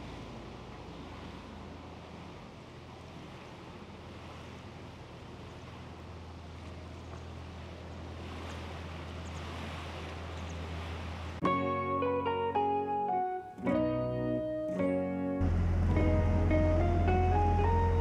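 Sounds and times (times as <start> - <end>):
water wash: 0.0 - 11.5, 15.4 - 18.0
boat engine humming: 0.0 - 18.0.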